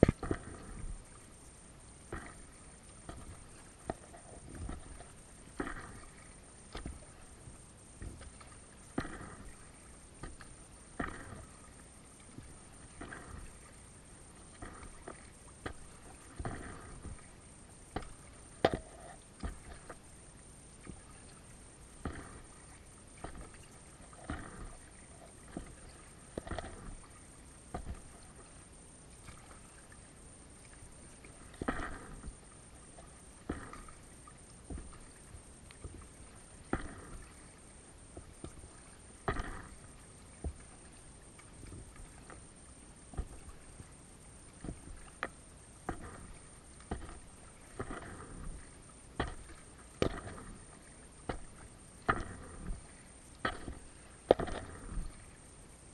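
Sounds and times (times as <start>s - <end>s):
kayak paddle splashing: 0.0s - 55.9s.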